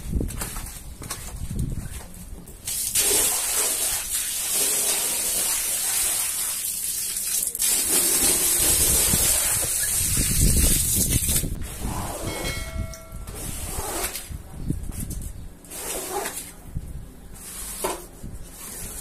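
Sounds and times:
water gushing onto a rug: 2.6 - 11.6.

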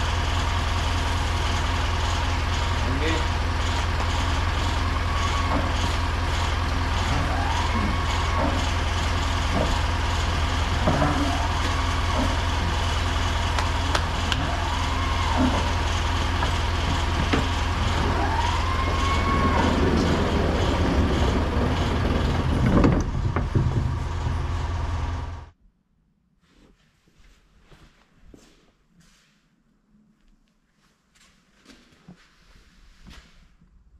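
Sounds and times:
engine idling: 0.0 - 25.6.

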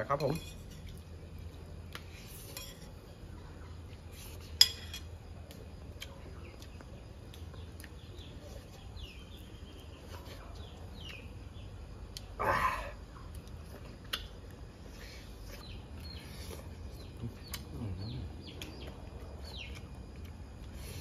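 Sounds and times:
birds chirping: 5.9 - 13.5, 14.1 - 21.0.

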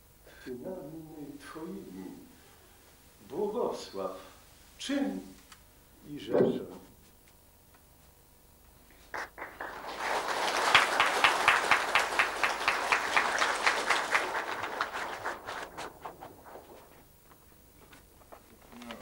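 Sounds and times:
audience applauding: 9.1 - 16.9.

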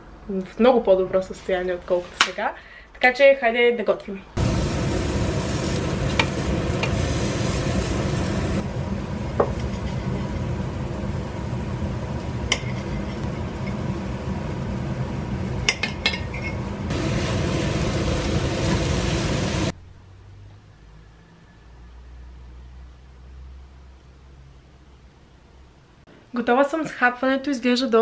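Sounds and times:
meat sizzling in a pan: 4.4 - 8.6, 16.9 - 19.7
fork scraping pan: 12.5 - 13.3.

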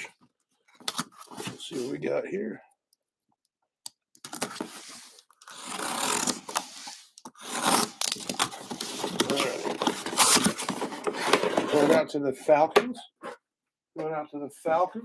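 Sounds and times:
cardboard and foam scraping: 4.5 - 12.0.

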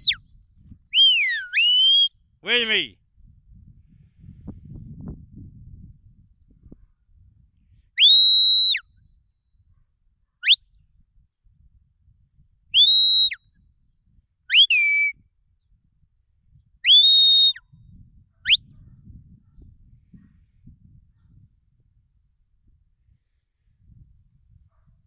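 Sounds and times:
shepherd's whistle signals: 0.0 - 0.3, 0.9 - 2.2, 8.0 - 8.9, 10.4 - 10.6, 12.7 - 13.4, 14.5 - 15.2, 16.8 - 17.8.

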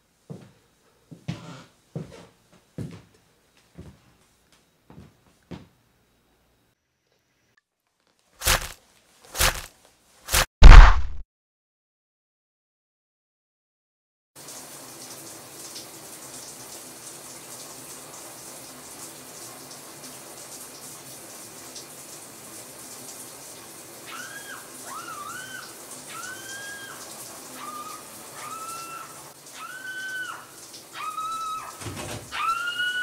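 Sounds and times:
shower running: 8.4 - 8.8, 14.4 - 33.0.

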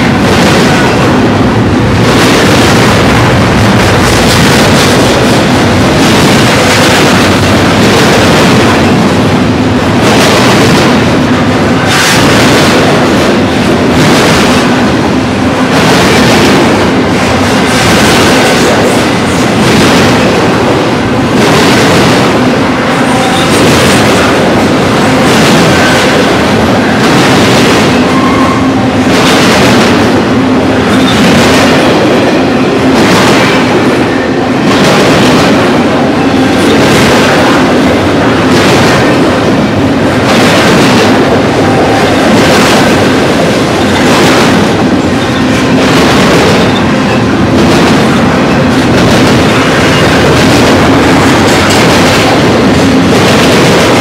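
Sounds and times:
freight train rolling past: 0.0 - 54.0
wheels clattering on rail: 0.0 - 54.0.

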